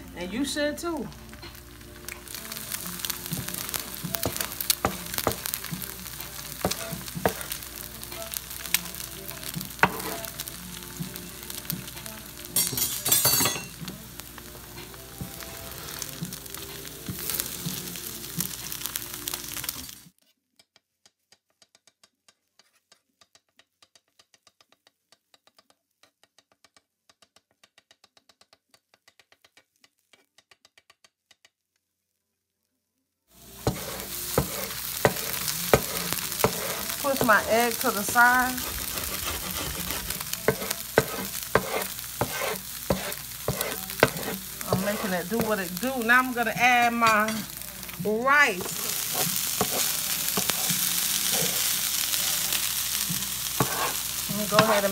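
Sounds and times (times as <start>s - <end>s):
egg sizzling on griddle: 0.2s - 20.2s, 33.3s - 54.9s
spatula scraping on metal: 9.8s - 10.4s, 33.6s - 45.3s, 48.6s - 51.7s, 53.6s - 54.9s.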